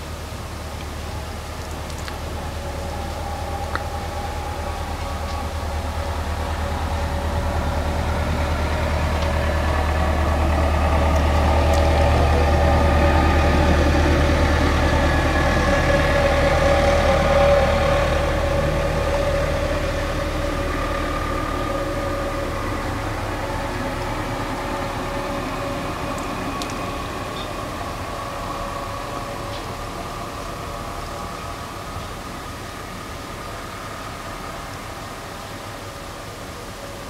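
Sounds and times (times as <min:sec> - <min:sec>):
vehicle engine driving past: 0:02.4 - 0:31.4.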